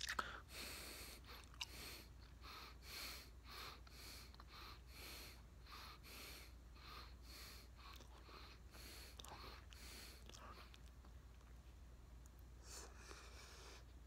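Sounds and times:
closed-mouth chewing of gum: 0.0 - 0.4, 1.2 - 2.4, 7.8 - 11.6.

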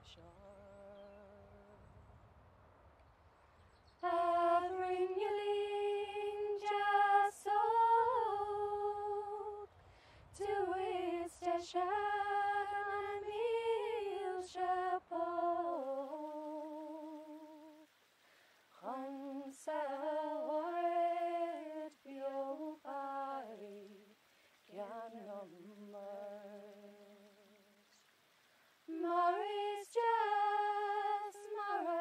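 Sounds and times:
woman singing unaccompanied: 0.0 - 1.8, 4.0 - 9.7, 10.4 - 17.9, 18.8 - 28.0, 28.9 - 32.0.

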